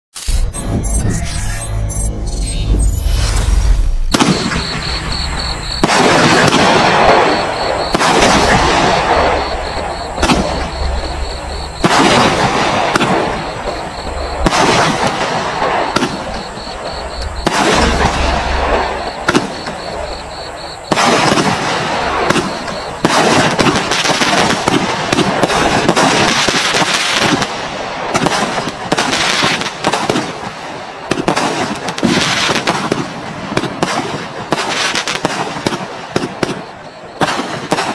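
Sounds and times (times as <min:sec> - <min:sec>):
firework crackling: 0:02.9 - 0:37.9
firework cake firing: 0:03.6 - 0:37.9.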